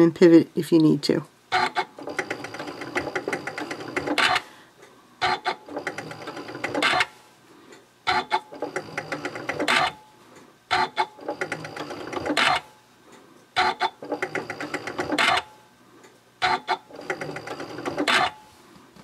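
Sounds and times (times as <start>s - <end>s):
sewing machine stitching: 1.5s - 4.4s, 5.2s - 7.1s, 8.1s - 10.0s, 10.7s - 12.7s, 13.6s - 15.5s, 16.4s - 18.4s
sewing machine clack: 1.6s - 4.4s, 5.2s - 7.1s, 8.1s - 10.0s, 10.7s - 12.7s, 13.6s - 15.5s, 16.4s - 18.4s.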